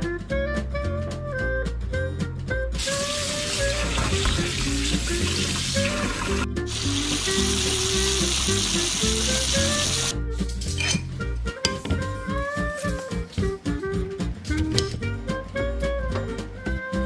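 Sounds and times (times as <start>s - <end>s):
light jazz music: 0.0s - 17.0s
tap water splashing into strainer: 3.2s - 6.4s.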